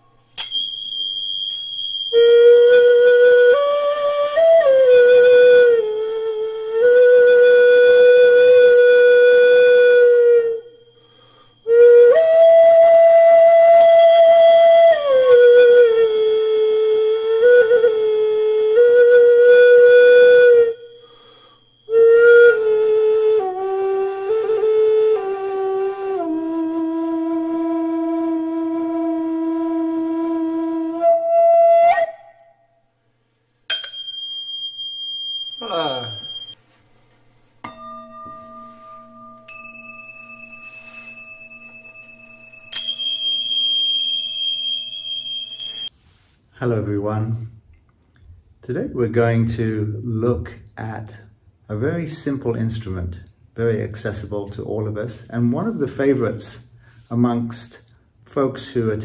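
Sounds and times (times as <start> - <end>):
hand cymbal ringing: 0.0 - 3.5, 9.7 - 11.8, 13.7 - 14.8, 20.7 - 22.5, 33.7 - 36.6, 37.6 - 46.0
flute playing slow melody: 1.6 - 32.7, 35.6 - 36.6, 38.3 - 45.9.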